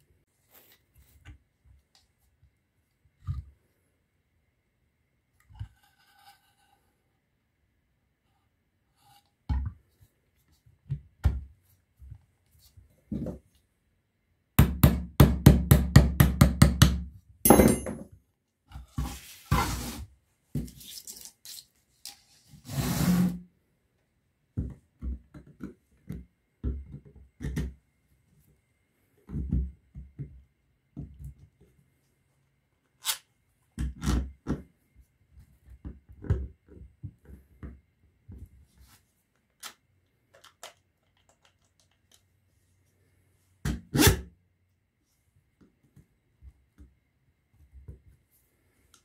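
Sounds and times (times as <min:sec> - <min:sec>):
metal parts knocking on workbench: 0:17.5 - 0:18.1.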